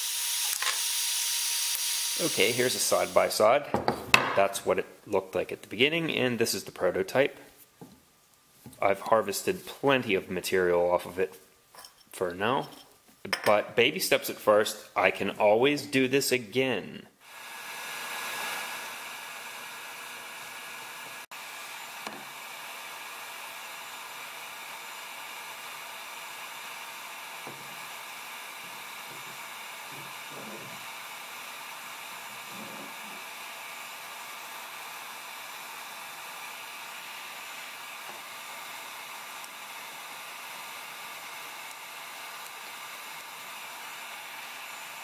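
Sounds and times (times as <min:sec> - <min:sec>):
heat gun blowing: 0:00.0 - 0:03.4, 0:17.2 - 0:45.0.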